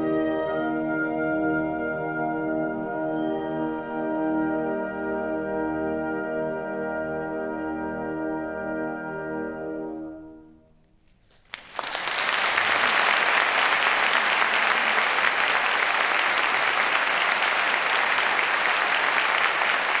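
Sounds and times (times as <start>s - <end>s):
audience applauding: 11.3s - 20.0s.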